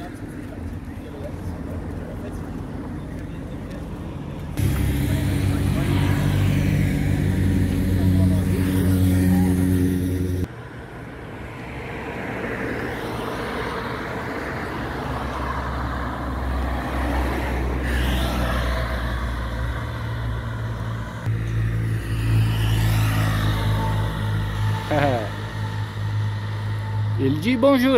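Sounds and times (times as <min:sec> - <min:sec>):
road noise: 0:00.0 - 0:27.9
car passing close: 0:04.6 - 0:10.5, 0:11.6 - 0:27.9
steady engine drone: 0:04.6 - 0:10.5, 0:21.2 - 0:27.9
three-wheeled motorcycle passing: 0:04.6 - 0:10.5, 0:16.4 - 0:27.9.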